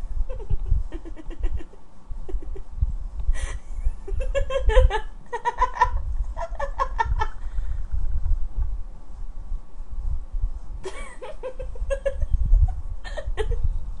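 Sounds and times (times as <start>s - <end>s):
person giggling: 0.3s - 2.6s, 3.4s - 7.4s, 10.8s - 13.7s.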